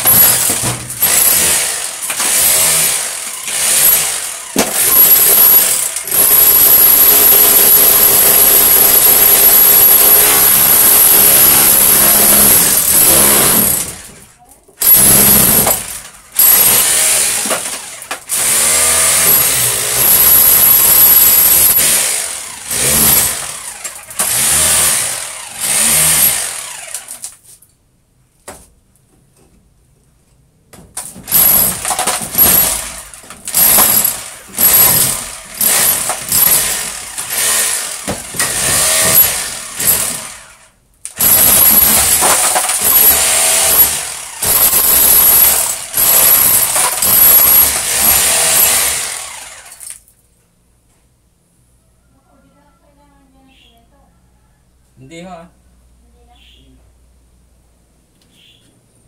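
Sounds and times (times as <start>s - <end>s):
power tool motor whining: 14.8s - 27.3s, 32.4s - 50.0s.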